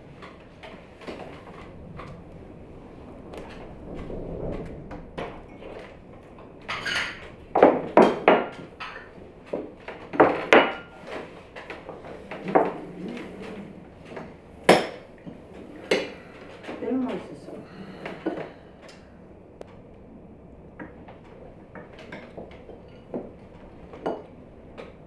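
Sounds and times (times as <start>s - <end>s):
tableware clinking on a table: 6.7s - 9.1s, 24.0s - 24.3s.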